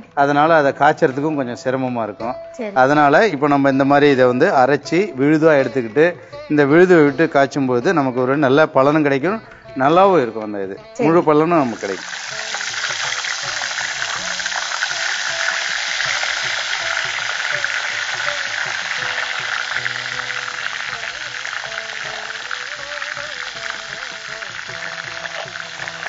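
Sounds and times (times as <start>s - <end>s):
soft background music: 0.0s - 26.0s
paste sizzling in hot oil: 11.6s - 26.0s.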